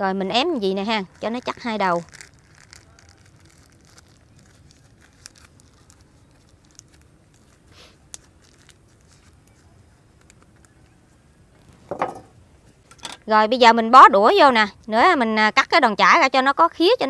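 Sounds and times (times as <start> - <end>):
leaves rustling and crinkling: 0.4 - 12.9.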